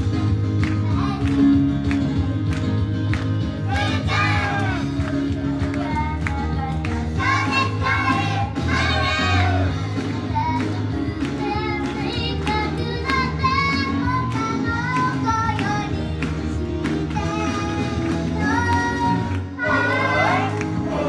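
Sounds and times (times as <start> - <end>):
upbeat pop music: 0.0 - 21.0
girls singing in unison: 5.6 - 10.7, 17.2 - 21.0.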